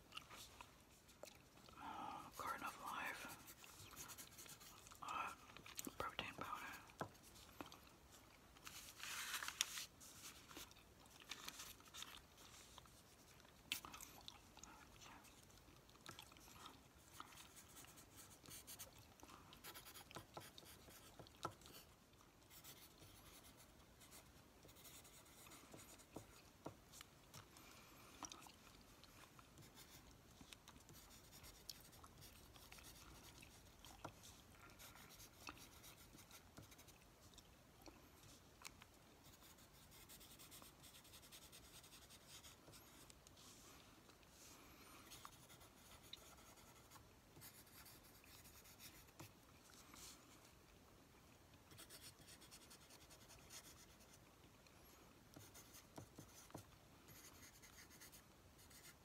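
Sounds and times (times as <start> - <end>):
paper rustle: 8.6 - 12.9.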